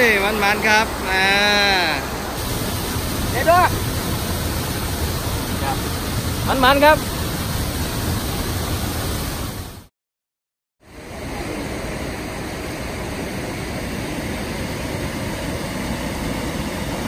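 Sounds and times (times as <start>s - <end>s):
water pouring over weir: 2.3s - 9.8s.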